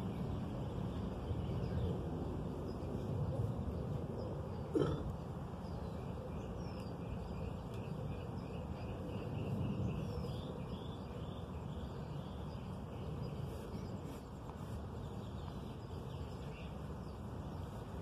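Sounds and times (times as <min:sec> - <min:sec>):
low outdoor background noise: 0:00.0 - 0:18.0
small birds chirping: 0:00.0 - 0:18.0.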